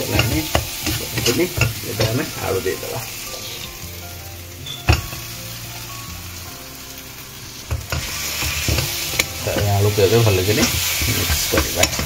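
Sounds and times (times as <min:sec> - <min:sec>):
spoon clacking against a pan: 0:00.0 - 0:03.7, 0:07.7 - 0:12.0
masala sizzling in a pan: 0:00.0 - 0:12.0.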